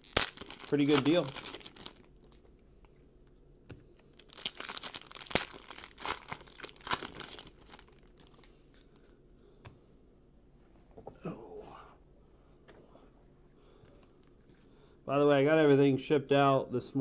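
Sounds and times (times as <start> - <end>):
foil wrapper tearing and crinkling: 0.0 - 2.4, 4.1 - 8.6
wrapper rustling: 0.0 - 2.5, 4.0 - 8.8.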